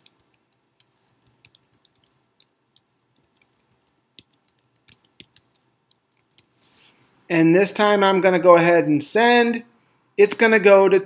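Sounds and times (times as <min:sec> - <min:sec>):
faint keyboard typing: 0:00.0 - 0:06.6.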